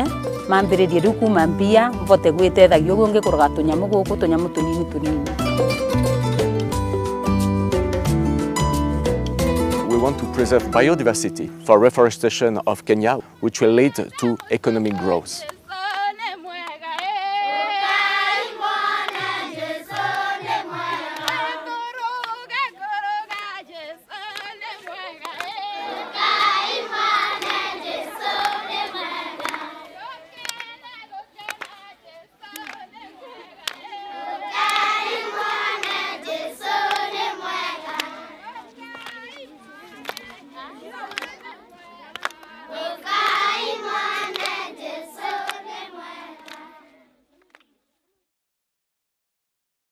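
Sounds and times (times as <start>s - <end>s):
children singing together: 13.8s - 31.4s, 32.5s - 38.7s, 40.4s - 47.0s
hand claps: 13.9s - 17.5s, 18.8s - 23.5s, 24.2s - 25.6s, 26.2s - 30.8s, 31.4s - 31.8s, 32.5s - 32.9s, 33.6s - 33.9s, 34.6s - 38.2s, 38.8s - 46.7s, 47.4s - 47.7s.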